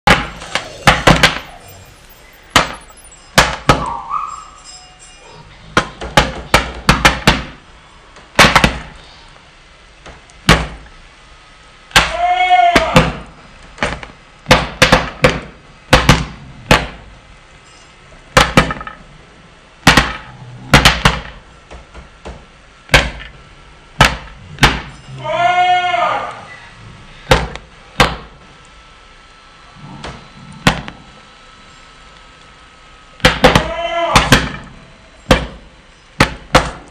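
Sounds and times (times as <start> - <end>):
parrot arched calls: 0.2 - 4.9.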